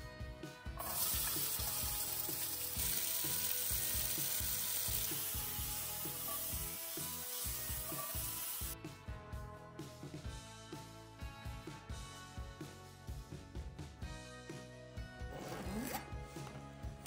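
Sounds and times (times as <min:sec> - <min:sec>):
peppers sizzling in oil: 0:00.8 - 0:08.8.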